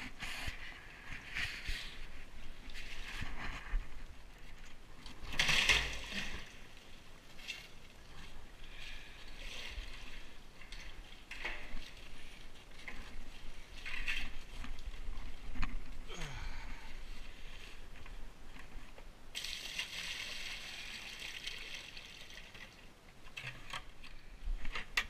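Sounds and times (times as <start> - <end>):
water sloshing and splashing: 2.4 - 16.0.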